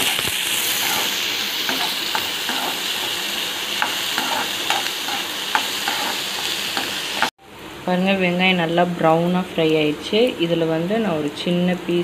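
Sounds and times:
onions sizzling in oil: 0.0 - 7.4
ladle tapping and scraping pan: 3.8 - 7.3.

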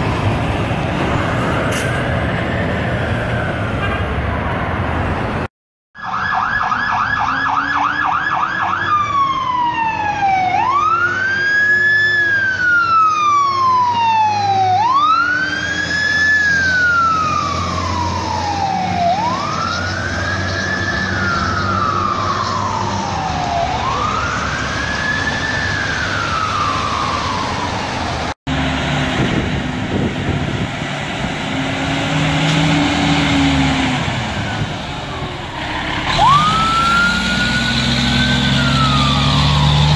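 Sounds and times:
truck engine: 0.0 - 5.5, 7.6 - 39.9
electronic siren yelp and wail: 6.0 - 28.1, 34.5 - 39.9.

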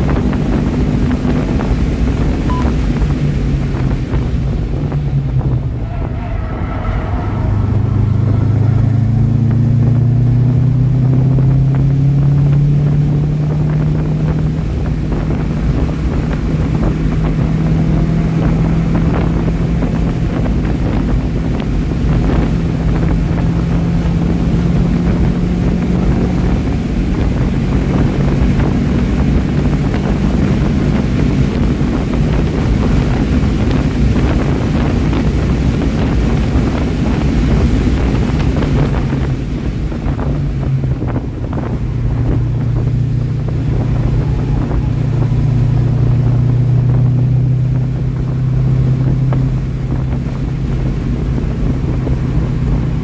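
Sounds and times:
car engine pulling hard: 0.0 - 53.0
wind and road noise: 0.0 - 53.0.

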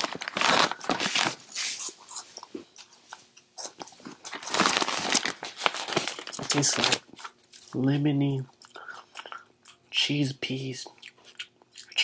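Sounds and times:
plastic snack bag rustling: 0.0 - 2.0, 3.7 - 7.9
crunchy snacks being chewed: 0.0 - 7.8, 10.8 - 12.0.

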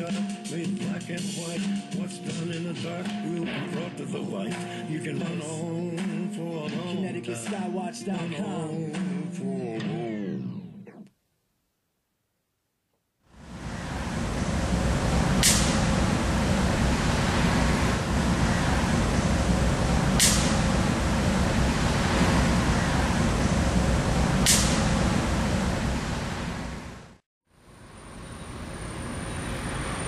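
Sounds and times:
low traffic rumble: 13.4 - 30.0.

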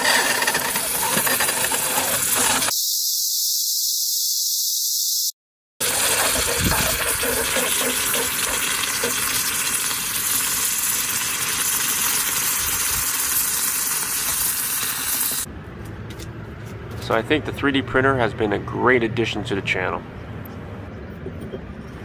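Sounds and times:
hot metal sizzling in water: 0.0 - 2.7, 5.8 - 15.5
high thin buzz: 2.0 - 5.4.

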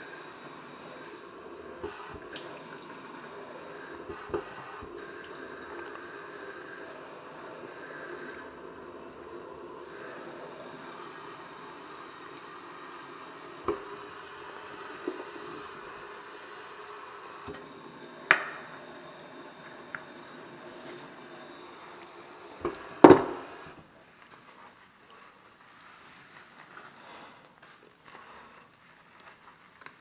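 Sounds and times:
water running in steel sink: 0.0 - 23.9.

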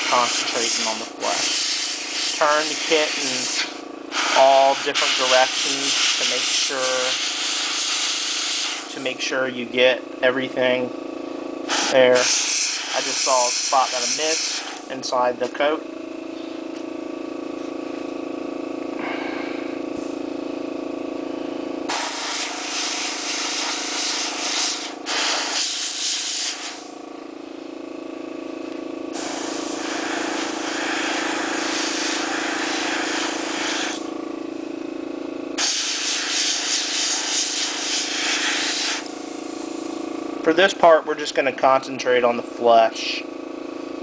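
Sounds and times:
airbrush spraying hiss: 0.0 - 8.9, 11.7 - 14.9, 21.9 - 26.9, 29.1 - 34.1, 35.6 - 39.8
air compressor humming: 0.0 - 44.0.

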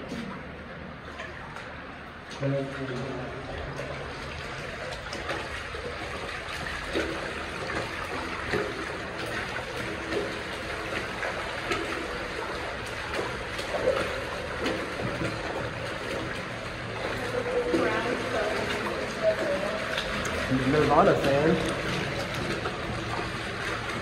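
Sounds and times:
water flowing through a tunnel: 0.0 - 24.0
water splashes: 0.0 - 24.0.

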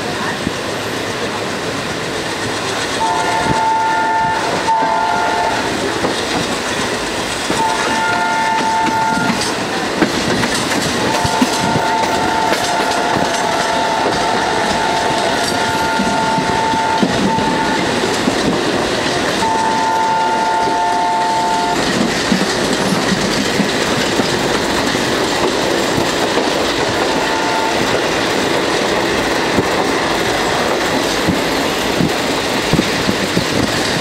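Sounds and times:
train wheels clacking on rails: 0.0 - 34.0
diesel locomotive horn blasts: 3.0 - 5.8, 7.6 - 9.6, 11.0 - 18.0, 19.4 - 22.0, 27.0 - 28.2.

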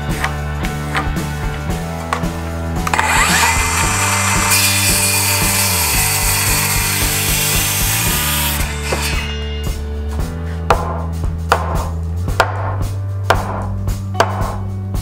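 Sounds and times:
circular saw cutting wood: 2.8 - 9.7.

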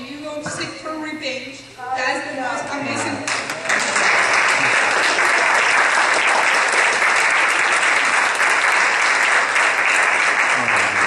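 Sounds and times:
crowd applauding: 3.0 - 11.0.

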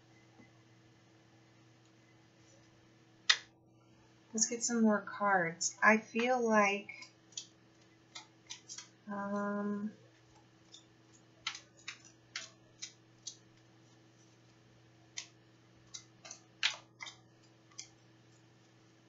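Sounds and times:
cards being shuffled: 10.2 - 14.0.

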